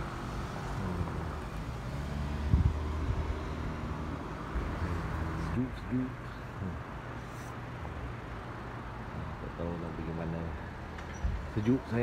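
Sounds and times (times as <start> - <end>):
passing cars rumbling: 0.0 - 12.0.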